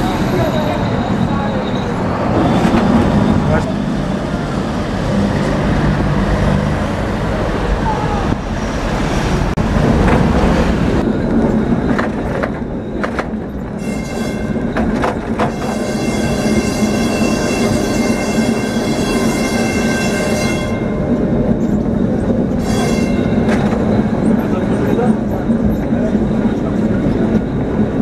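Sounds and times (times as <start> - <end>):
high-pitched wheel squeal: 0.0 - 3.6, 11.1 - 27.9
tram rumbling on rails: 0.0 - 28.0.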